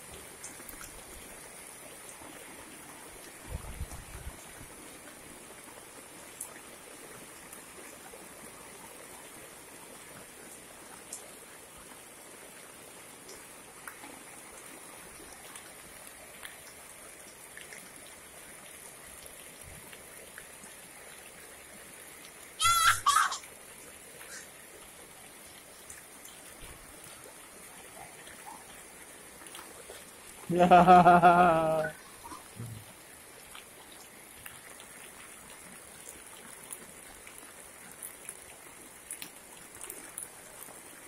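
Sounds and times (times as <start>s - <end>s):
rain on pavement: 0.0s - 22.6s, 23.4s - 41.0s
water drips and splashes: 0.0s - 41.0s
child squealing: 22.6s - 23.4s.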